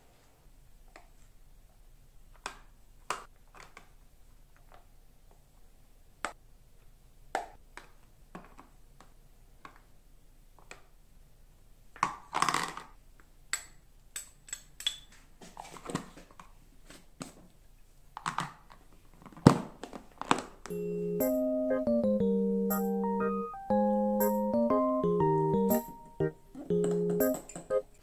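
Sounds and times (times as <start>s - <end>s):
plastic and cutlery clatter: 12.0s - 12.9s, 14.2s - 16.5s, 18.2s - 20.6s.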